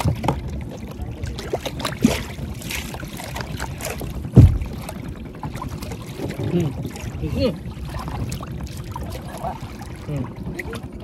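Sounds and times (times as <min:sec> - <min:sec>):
low rumble of water and wind: 0:00.0 - 0:11.0
heavy thump: 0:04.3 - 0:04.8.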